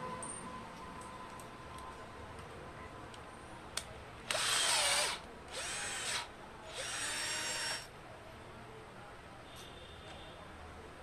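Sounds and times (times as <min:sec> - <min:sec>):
cordless drill whining: 0:04.3 - 0:07.9.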